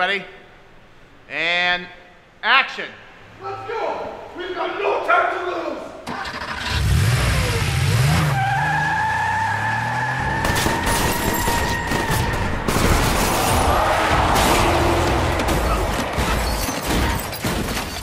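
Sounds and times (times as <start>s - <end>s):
car engine revving: 6.2s - 17.3s
gunfire bursts: 10.4s - 18.0s.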